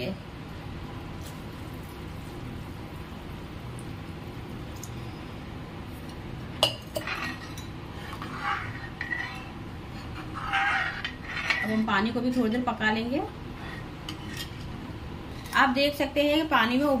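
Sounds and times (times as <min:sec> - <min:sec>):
metal ladle scraping pot: 0:06.7 - 0:11.9, 0:13.6 - 0:14.7.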